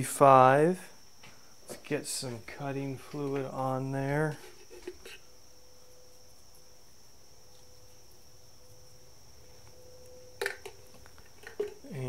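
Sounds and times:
faint electrical whine: 0:00.0 - 0:12.0.

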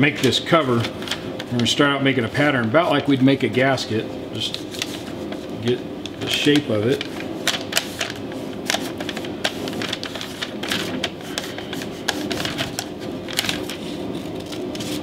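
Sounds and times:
paper crinkling: 0:04.4 - 0:05.6, 0:06.2 - 0:15.0
scissors cutting paper: 0:06.5 - 0:15.0.

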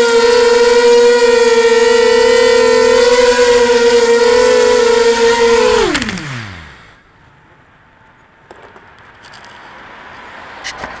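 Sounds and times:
drone motors whining: 0:00.0 - 0:07.0.

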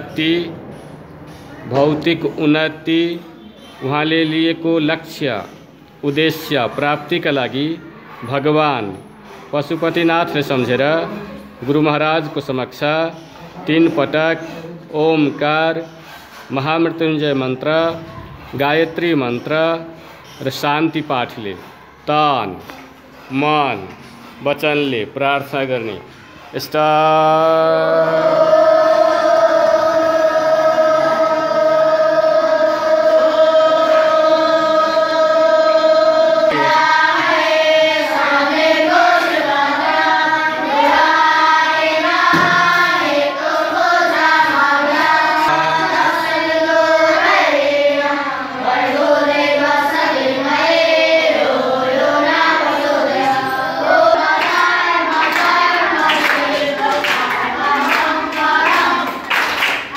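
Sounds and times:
boys chanting in unison: 0:00.0 - 0:22.7, 0:25.6 - 0:59.7.

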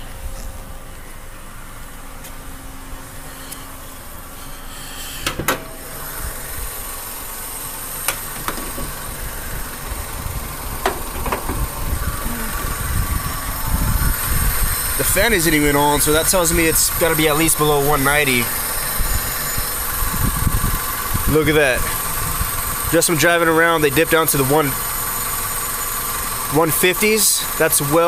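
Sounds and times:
car engine idling: 0:00.0 - 0:28.0
car door shutting: 0:05.1 - 0:06.0, 0:07.9 - 0:09.2, 0:10.6 - 0:12.9
car hood clicks: 0:08.0 - 0:09.0, 0:10.8 - 0:11.8.

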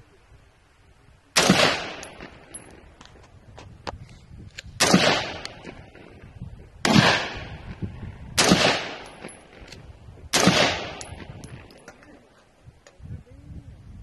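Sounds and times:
rifle shots echoing: 0:01.4 - 0:02.8, 0:04.8 - 0:06.1, 0:06.8 - 0:07.6, 0:08.4 - 0:09.7, 0:10.3 - 0:11.7.

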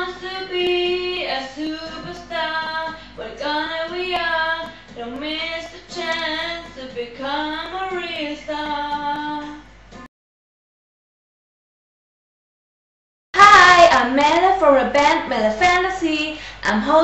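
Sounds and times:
woman singing pop song: 0:00.0 - 0:09.7, 0:13.4 - 0:17.0.

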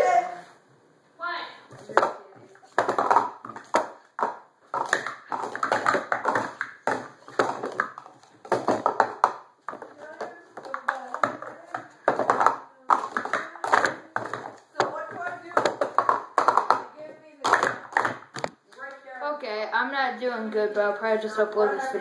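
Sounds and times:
plastic cups clacking: 0:01.7 - 0:18.6.

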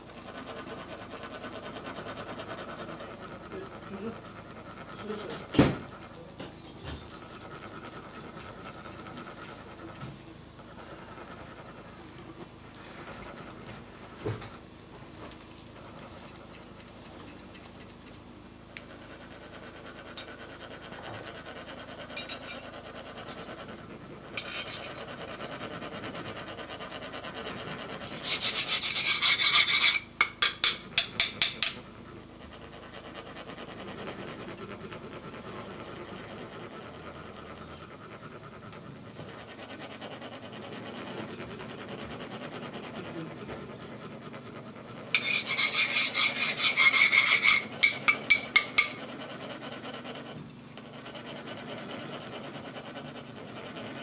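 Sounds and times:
metal scraper rasping metal funnel: 0:24.4 - 0:25.0, 0:28.0 - 0:31.8, 0:45.1 - 0:49.1.

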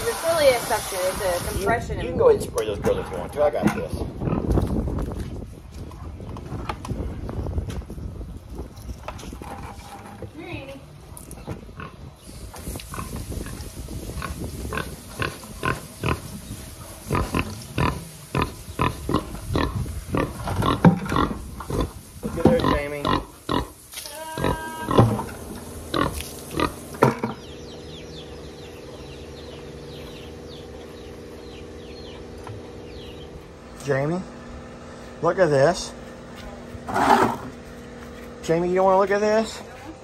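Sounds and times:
pigs grunting and squealing: 0:17.1 - 0:25.3
steady low hum: 0:25.2 - 0:40.0.

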